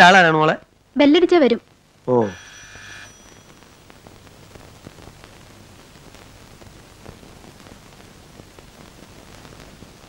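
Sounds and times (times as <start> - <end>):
film soundtrack hiss: 0.0 - 10.0.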